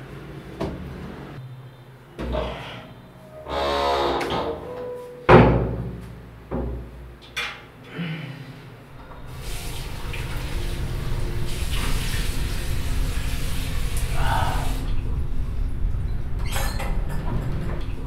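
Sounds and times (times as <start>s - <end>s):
water running from sink tap: 9.0s - 14.9s.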